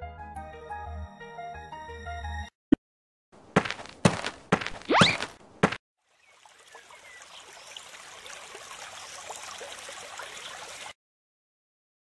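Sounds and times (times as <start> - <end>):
water trickling: 6.0 - 11.0.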